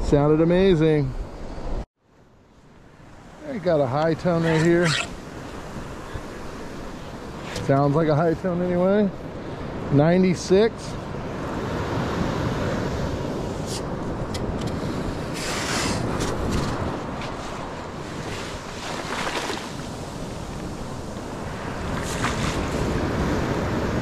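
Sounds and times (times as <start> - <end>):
surf washing up sand: 2.9 - 24.0
metal scoop digging wet sand: 3.9 - 5.2
wind buffeting microphone: 11.0 - 24.0.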